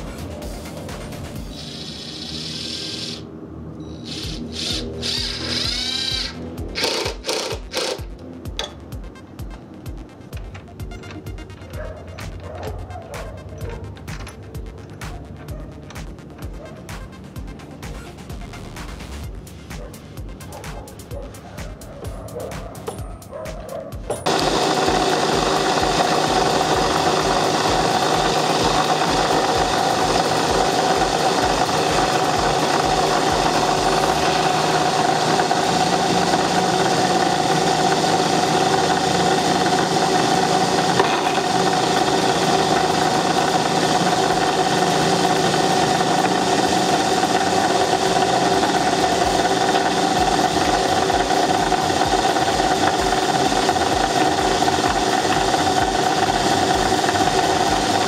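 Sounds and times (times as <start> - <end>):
motor-driven machine whining: 0.0 - 8.7, 24.1 - 58.0.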